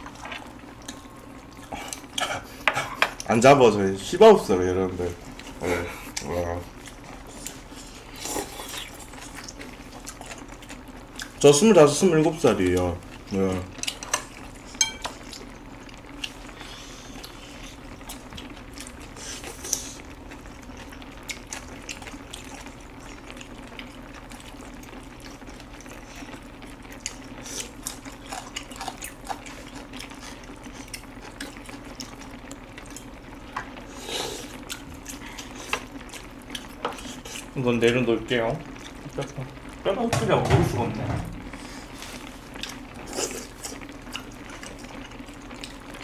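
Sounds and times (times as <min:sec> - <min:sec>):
wet chewing and sucking: 0:00.0 - 0:02.6, 0:06.1 - 0:11.4, 0:16.1 - 0:24.6, 0:25.2 - 0:33.1, 0:33.7 - 0:37.6, 0:41.6 - 0:45.9
steady low hum: 0:00.0 - 0:46.0.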